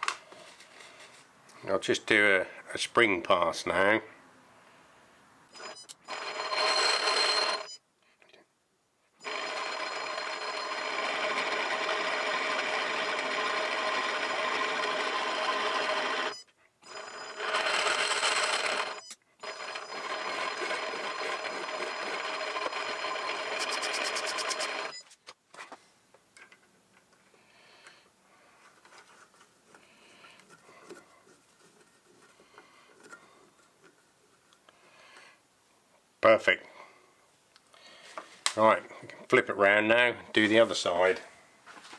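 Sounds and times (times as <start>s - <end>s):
metal lathe whining: 5.6s - 7.7s, 9.2s - 24.9s.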